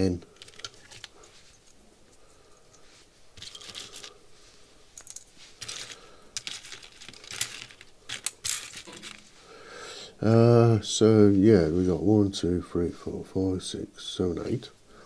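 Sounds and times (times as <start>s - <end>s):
small parts rustling and clinking: 0.0s - 9.4s.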